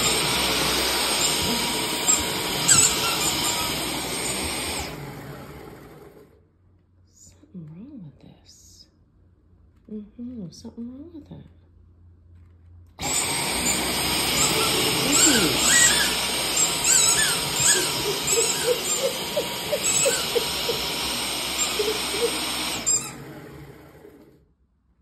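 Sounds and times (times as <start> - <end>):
stick vacuum running with high whine: 0.0 - 6.4, 13.0 - 24.4
squeaky dog toy squeaking: 1.1 - 4.3, 14.2 - 23.2.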